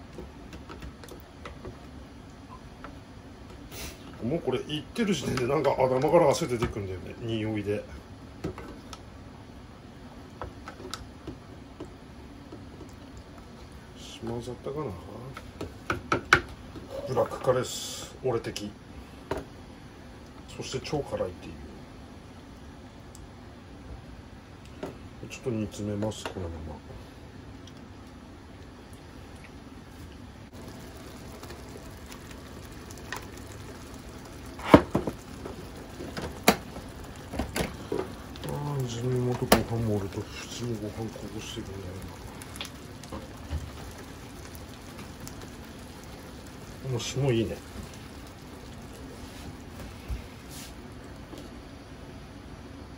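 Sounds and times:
low steady background noise: 0.0s - 52.9s
curry simmering hiss: 1.2s - 11.2s, 12.0s - 21.9s, 29.8s - 52.9s
bubbles popping: 30.5s - 51.2s.

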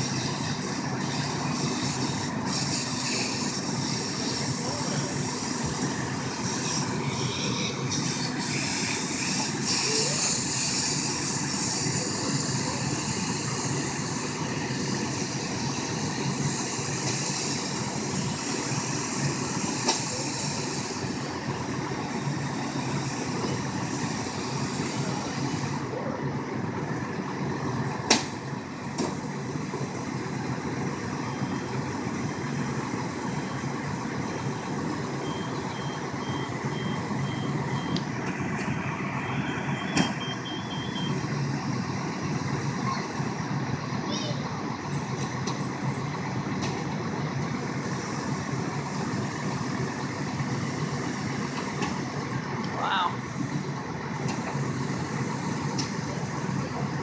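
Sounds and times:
hose spraying water: 0.0s - 25.9s, 47.5s - 52.3s, 54.2s - 57.0s
fire engine running: 0.0s - 57.0s
vehicle reversing beeps: 30.8s - 41.8s.

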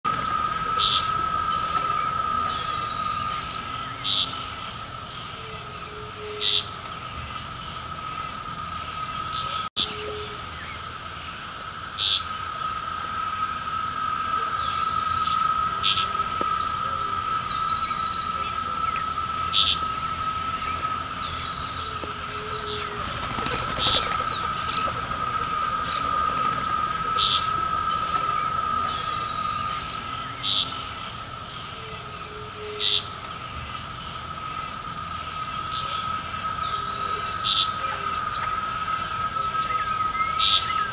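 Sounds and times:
high-pitched insect drone: 0.1s - 40.9s
small birds chirping: 0.1s - 40.9s.

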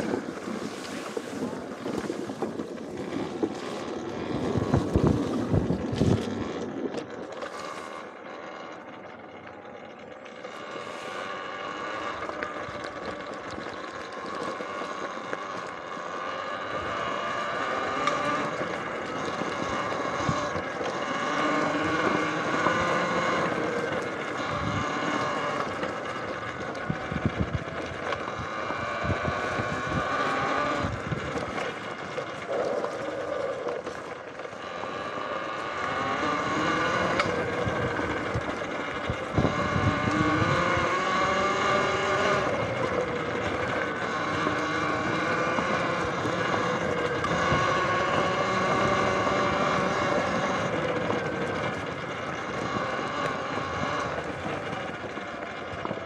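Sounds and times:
wind rush on microphone: 0.0s - 7.7s, 16.7s - 33.9s, 36.2s - 56.0s
electric motor whine: 0.0s - 56.0s.

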